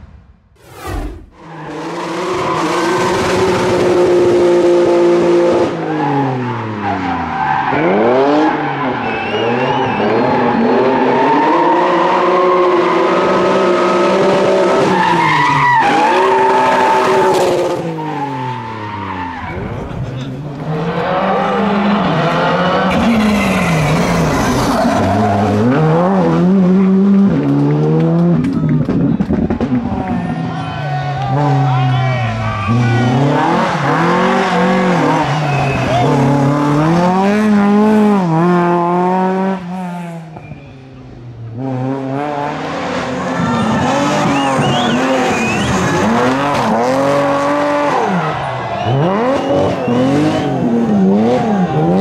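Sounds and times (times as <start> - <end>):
rally car engine revving: 0.6 - 30.6, 31.2 - 52.0
tyre squeal: 7.4 - 11.5, 43.4 - 46.5
tyres skidding on loose surface: 22.0 - 26.0.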